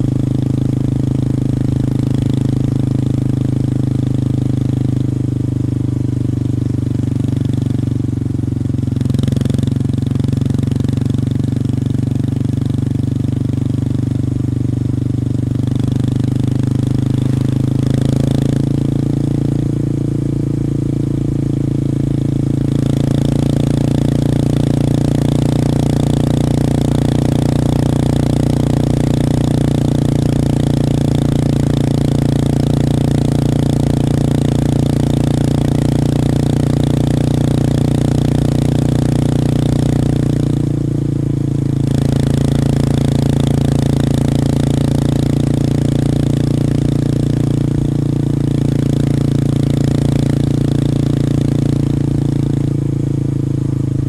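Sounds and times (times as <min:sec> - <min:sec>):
motorcycle engine cruising: 0:00.0 - 0:54.0.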